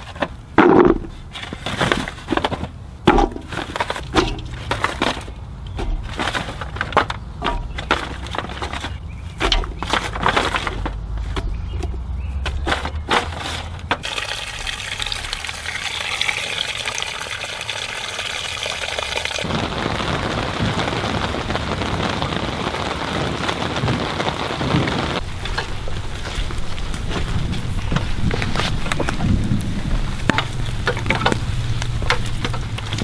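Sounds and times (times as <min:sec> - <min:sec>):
water pouring into pot: 0:14.0 - 0:19.5.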